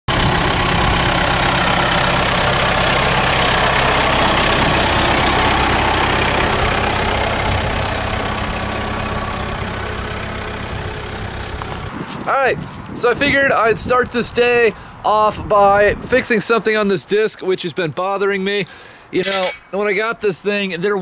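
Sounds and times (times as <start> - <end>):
diesel tractor engine idling: 0.1 - 15.3.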